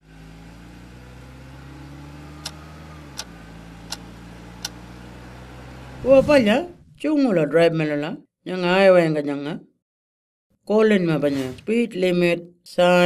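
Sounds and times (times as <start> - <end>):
car engine running: 0.0 - 7.0
sharp clicks: 2.4 - 2.6, 3.9 - 4.8.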